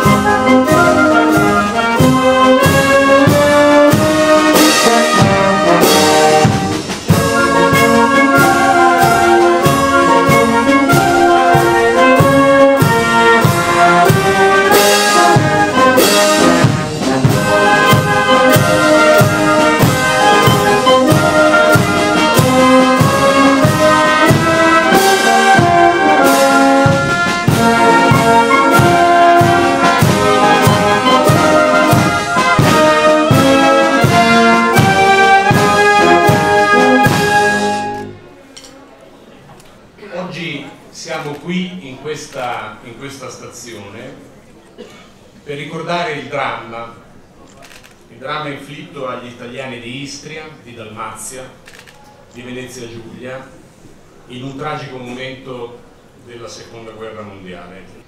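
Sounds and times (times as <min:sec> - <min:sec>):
military wind band playing: 0:00.0 - 0:38.4.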